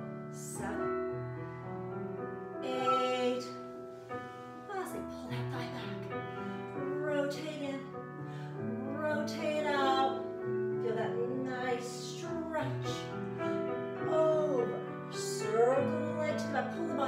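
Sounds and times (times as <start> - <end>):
woman singing: 0.3 - 1.2, 2.6 - 3.6, 4.7 - 6.2, 6.8 - 8.0, 8.6 - 13.2, 14.0 - 17.0.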